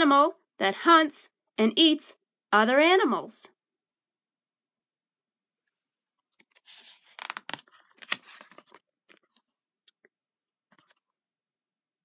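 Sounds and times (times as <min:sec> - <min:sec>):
book page turning: 0:06.3 - 0:09.4.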